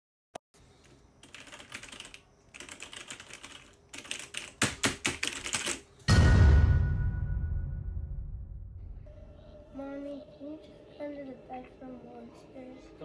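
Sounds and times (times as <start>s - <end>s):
loud low ringing hit: 6.1s - 9.4s.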